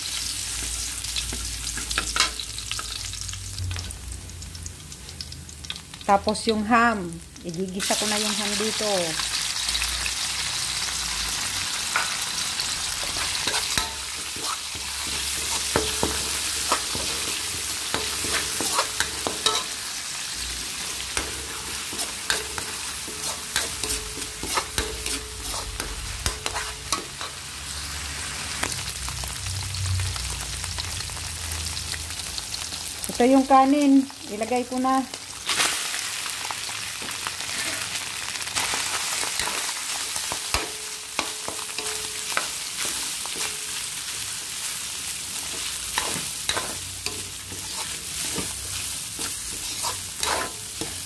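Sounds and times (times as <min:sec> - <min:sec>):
food sizzling in oil: 0:00.0 - 0:51.0
spatula scraping a pan: 0:12.9 - 0:27.4, 0:37.4 - 0:38.0, 0:39.3 - 0:44.6, 0:45.4 - 0:51.0.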